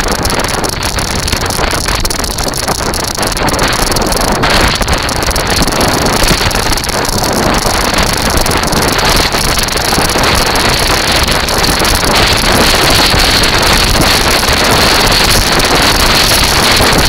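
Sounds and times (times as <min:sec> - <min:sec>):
wheels rumbling on sand and shingle: 0:00.0 - 0:17.0
wind rushing over microphone: 0:00.0 - 0:17.0.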